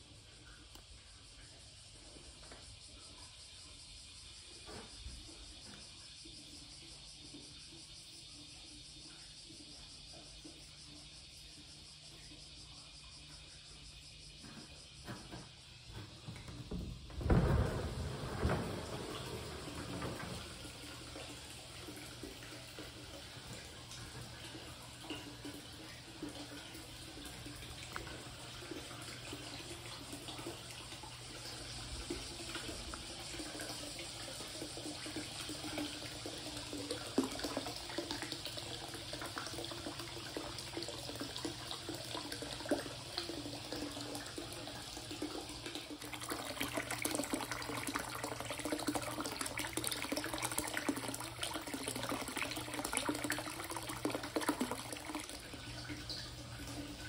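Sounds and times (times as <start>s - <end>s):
water pouring into a bath: 15.7s - 57.0s.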